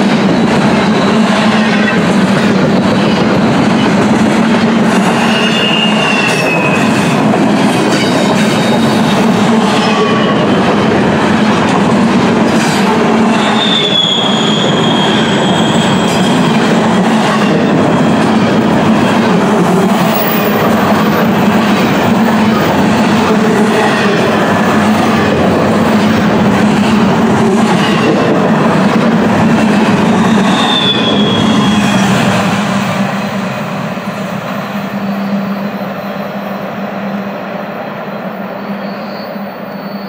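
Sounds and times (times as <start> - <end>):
freight train wheels rumbling on rail: 0.0 - 40.0
high wheel squeals: 5.1 - 7.2, 13.3 - 16.7, 30.2 - 32.2, 34.9 - 36.2, 38.5 - 40.0.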